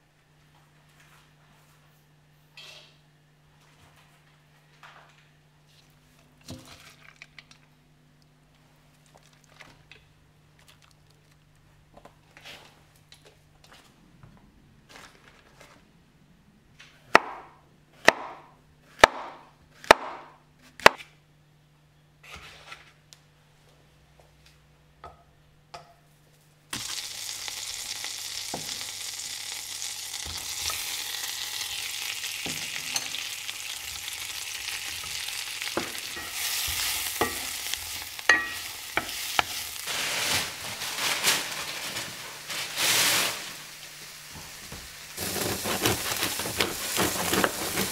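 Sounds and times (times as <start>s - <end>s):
knife chopping on wooden board: 17.1s - 21.1s, 45.2s - 47.9s
butter sizzling in skillet: 26.7s - 39.9s, 43.0s - 47.9s.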